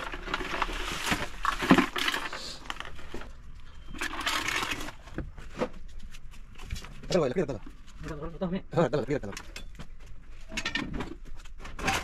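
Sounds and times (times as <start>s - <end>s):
plastic bags rustling: 0.0s - 8.0s.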